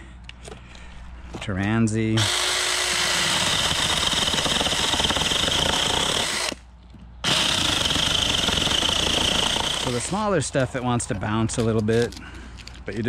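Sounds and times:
electric chainsaw cutting branch: 2.2 - 6.6, 7.2 - 10.3.

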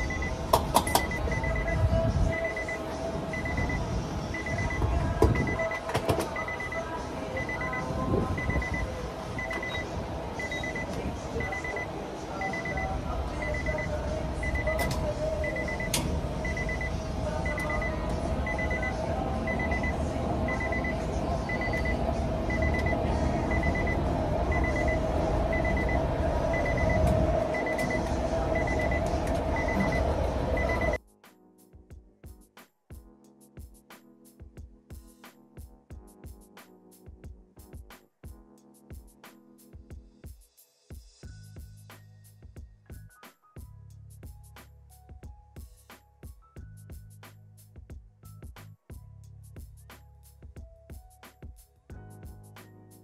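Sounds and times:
high beep: 0.0 - 31.0.

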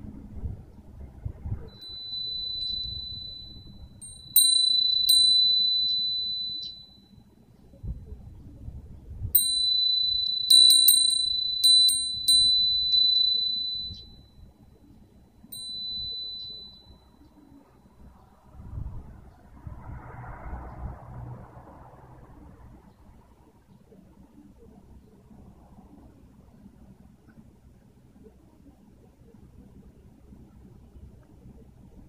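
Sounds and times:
low rumble of wind: 0.0 - 32.0
cast-iron wind chime ringing: 1.7 - 7.1, 9.4 - 14.2, 15.5 - 17.8.

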